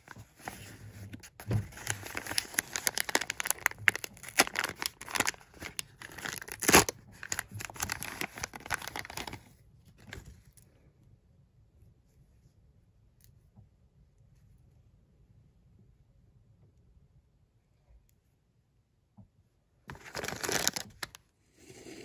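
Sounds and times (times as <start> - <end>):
paper bag crinkling and tearing: 0.0 - 9.5, 19.9 - 21.2.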